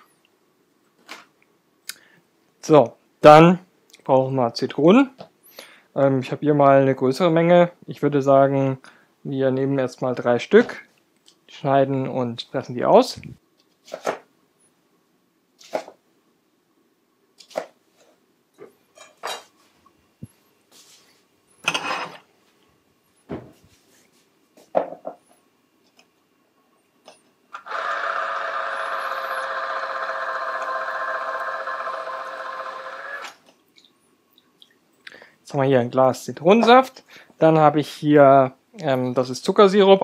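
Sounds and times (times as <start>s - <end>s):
citrus juicer motor running: 27.6s - 33.4s.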